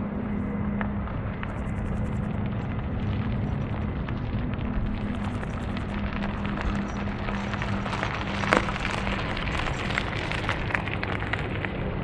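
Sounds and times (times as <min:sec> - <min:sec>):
distant jet engines rumbling: 0:00.0 - 0:12.0.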